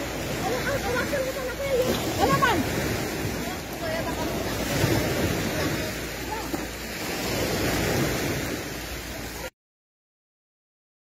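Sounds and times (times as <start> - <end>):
sea surf rushing: 0.0 - 9.5.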